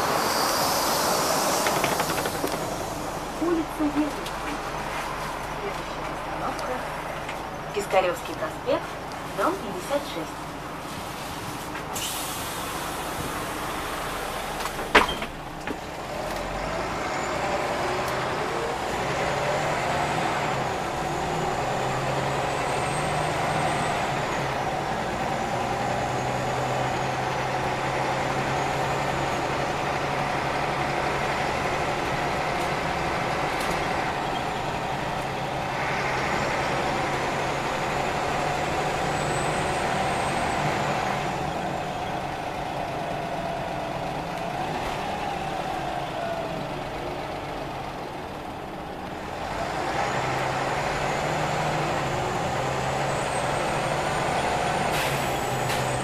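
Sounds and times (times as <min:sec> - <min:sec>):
bus diesel engine running: 0:00.0 - 0:56.0.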